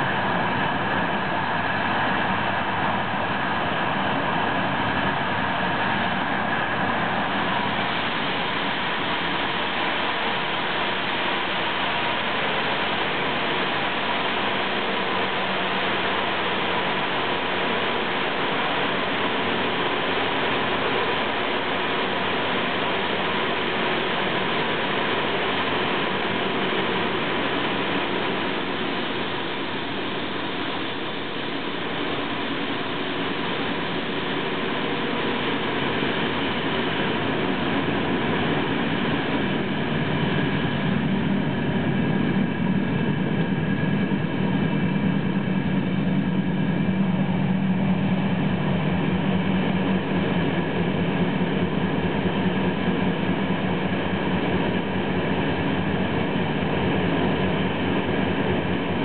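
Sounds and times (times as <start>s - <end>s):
low hum: 0.0s - 59.0s.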